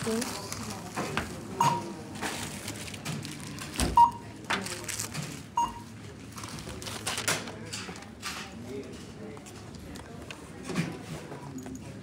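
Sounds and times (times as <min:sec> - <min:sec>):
short electronic beeps: 0:05.6 - 0:05.8.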